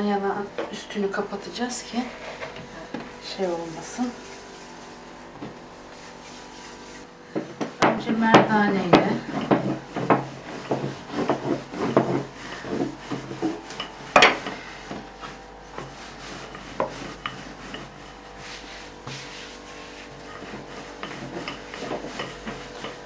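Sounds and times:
rolling pin rolling dough: 1.1s - 23.0s
rolling pin knocking on board: 7.3s - 13.6s.

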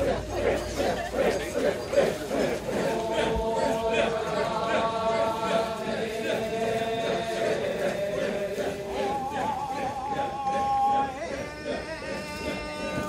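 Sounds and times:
voices chanting long wavering notes: 0.0s - 13.0s.

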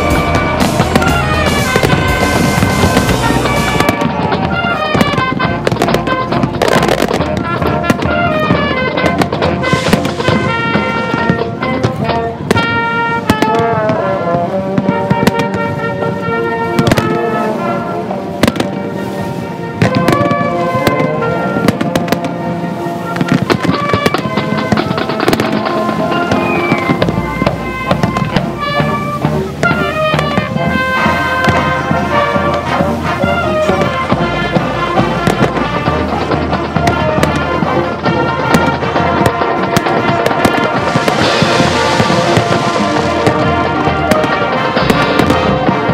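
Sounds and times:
fireworks bangs: 0.0s - 45.9s
music with held notes: 0.0s - 45.9s
song playing: 0.0s - 45.9s.

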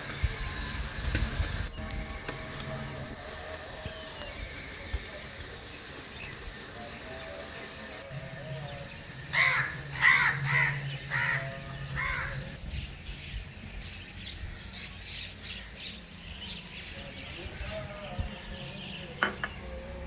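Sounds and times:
crow cawing: 9.3s - 12.5s.

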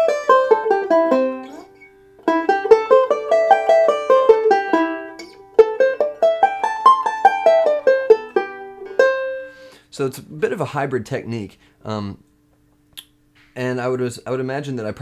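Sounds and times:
banjo playing fast scale runs: 0.0s - 1.4s, 2.2s - 9.4s.

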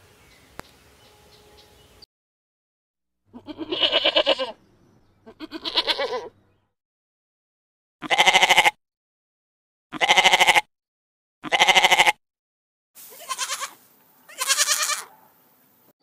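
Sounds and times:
sheep bleating: 3.3s - 4.6s, 5.2s - 6.3s, 8.0s - 8.8s, 9.9s - 10.7s, 11.4s - 12.2s, 13.1s - 15.1s.

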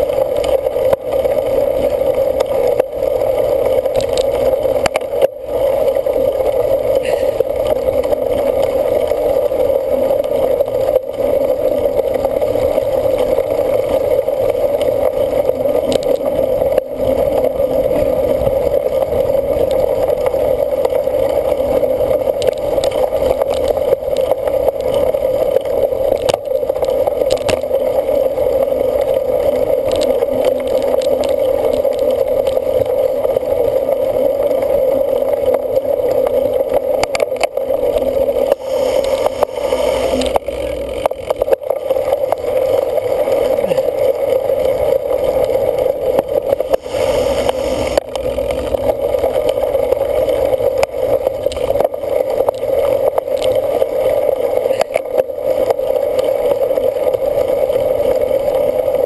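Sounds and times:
bike clicking and rattling: 0.0s - 59.0s
wind and tyre noise: 0.0s - 59.0s.

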